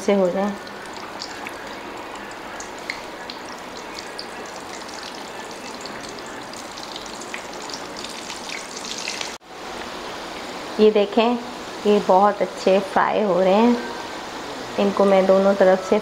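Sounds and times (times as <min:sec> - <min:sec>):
deep-frying sizzle with pops: 0:00.0 - 0:10.7.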